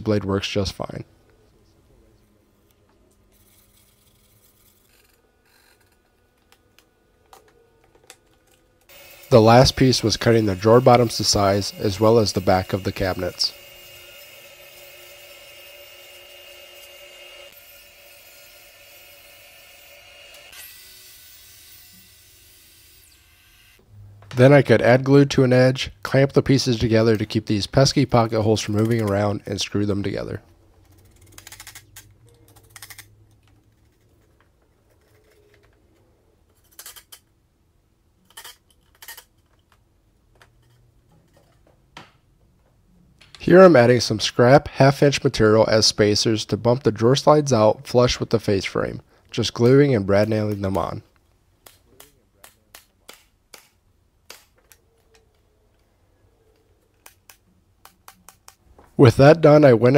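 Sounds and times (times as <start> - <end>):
nailer firing sharp clicks: 51.6 - 54.7.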